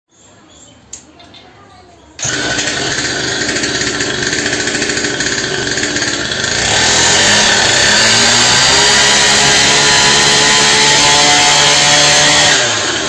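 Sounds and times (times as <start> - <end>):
small two-stroke engine buzzing: 2.2 - 13.0.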